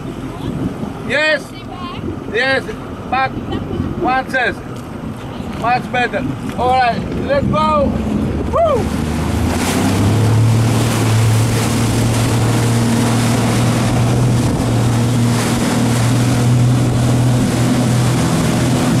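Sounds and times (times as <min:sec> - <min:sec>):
wind on microphone: 0:00.0 - 0:04.0, 0:04.6 - 0:19.0
motorboat engine running: 0:00.0 - 0:19.0
rushing wake and spray: 0:00.0 - 0:19.0.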